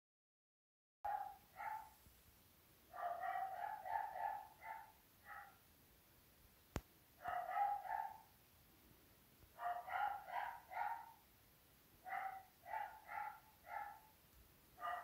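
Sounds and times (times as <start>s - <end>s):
small dog yapping: 1.1s - 1.9s, 3.0s - 5.6s, 7.2s - 8.2s, 9.6s - 11.2s, 12.1s - 14.1s.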